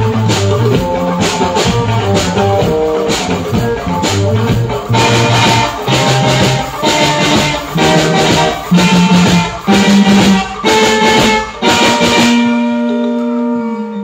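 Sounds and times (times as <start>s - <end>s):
drums: 0.0s - 13.6s
bass guitar: 0.0s - 14.0s
electric guitar: 0.0s - 14.0s.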